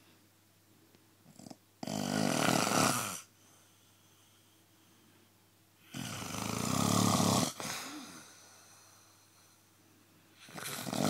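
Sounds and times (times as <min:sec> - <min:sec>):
person snoring: 0:01.3 - 0:03.3, 0:05.8 - 0:08.6, 0:10.4 - 0:11.0.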